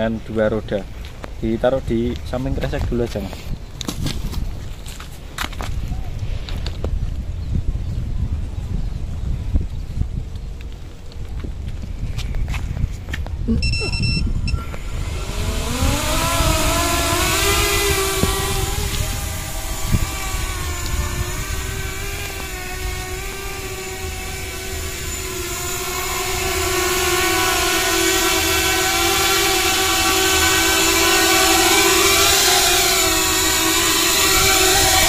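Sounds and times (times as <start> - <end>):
drone motors whining: 13.5 - 35.0.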